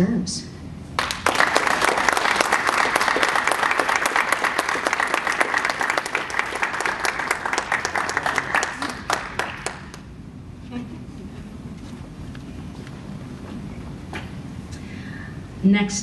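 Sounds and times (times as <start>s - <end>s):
audience applauding: 1.0s - 10.1s.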